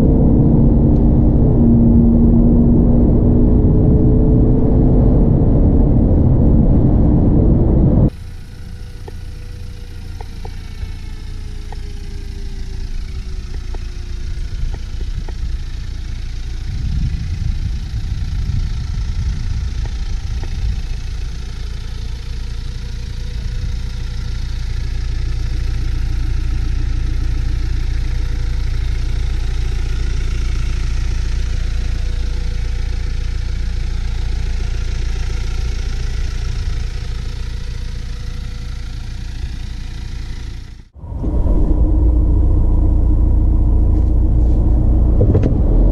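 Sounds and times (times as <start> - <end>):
diesel engine idling: 0.0 - 45.9.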